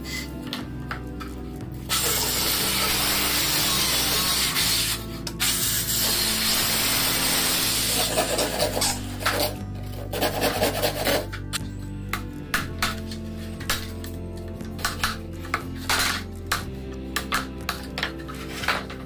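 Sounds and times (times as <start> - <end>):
hand saw cutting plywood: 1.9 - 11.4.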